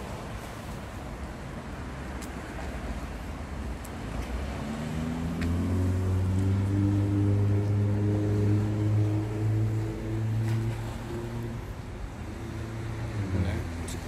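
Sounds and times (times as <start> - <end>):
engine humming low: 3.6 - 14.0.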